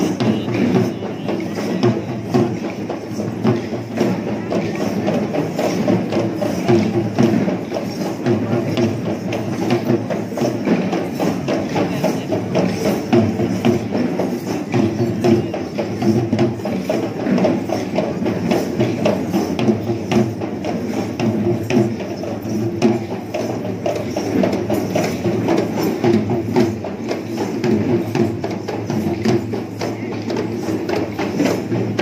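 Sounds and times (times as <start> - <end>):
procession drumming: 0.0 - 23.8.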